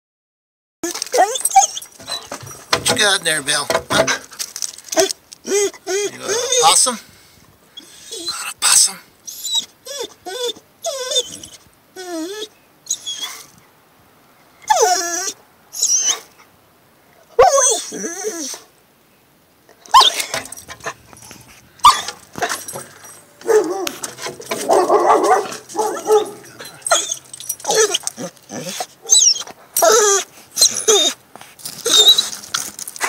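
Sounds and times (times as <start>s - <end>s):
dog whining and whimpering: 0.8s - 2.7s, 5.0s - 6.9s, 7.8s - 8.6s, 9.3s - 13.5s, 14.6s - 16.3s, 17.3s - 18.7s, 19.9s - 31.2s, 31.8s - 32.4s
dog barking: 23.4s - 24.0s, 24.6s - 27.1s.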